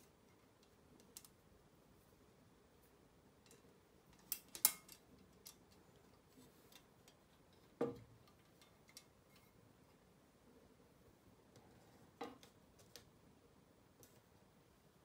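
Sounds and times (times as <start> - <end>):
small metal parts clicking: 0.6 - 1.4, 3.4 - 5.8.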